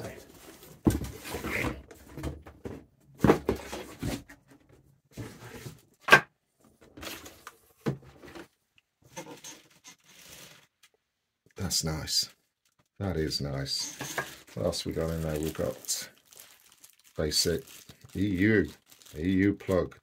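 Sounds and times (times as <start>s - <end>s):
cardboard packaging knocks and rustles: 0.7s - 4.3s.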